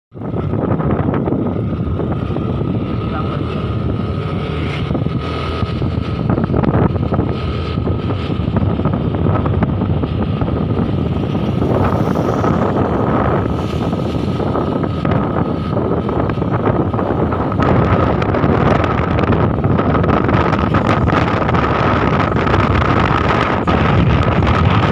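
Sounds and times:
wind buffeting microphone: 0:00.1 - 0:24.9
motorcycle engine running: 0:00.2 - 0:24.9.

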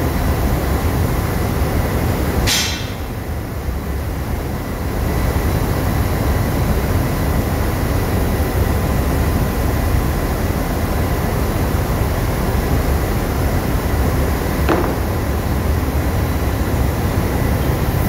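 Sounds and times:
engine room machinery rumble: 0:00.0 - 0:18.0.

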